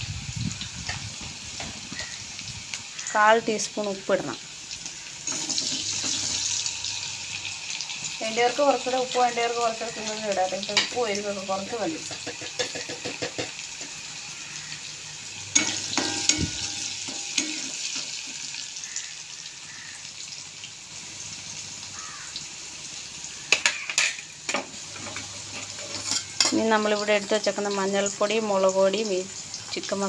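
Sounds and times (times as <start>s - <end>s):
food sizzling in hot oil: 0.0s - 30.0s
spoon scraping metal pan: 5.2s - 6.6s, 15.5s - 18.2s, 23.5s - 26.7s.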